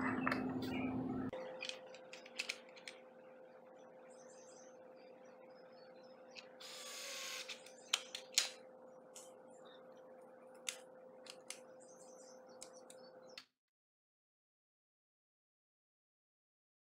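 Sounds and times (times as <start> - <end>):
cordless drill driving screw: 6.6 - 7.7.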